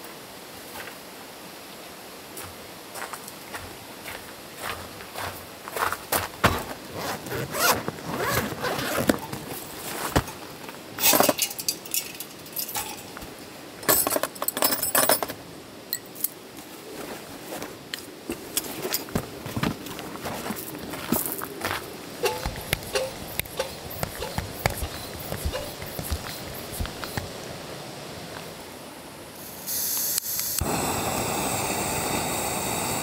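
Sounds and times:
footsteps on gravel: 0:02.4 - 0:10.4, 0:17.0 - 0:27.4
fabric bag rustling: 0:06.7 - 0:10.4
zipper pulls: 0:06.9 - 0:09.4.

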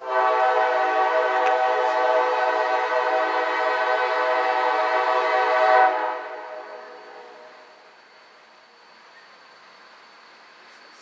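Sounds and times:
locomotive air horn blast: 0:00.0 - 0:07.7.

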